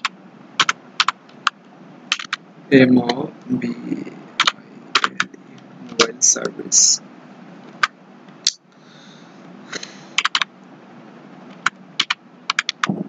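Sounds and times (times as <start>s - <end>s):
keyboard typing: 0.0s - 2.4s, 4.4s - 6.6s, 9.8s - 10.5s, 11.5s - 13.0s
steady background noise: 0.0s - 13.0s.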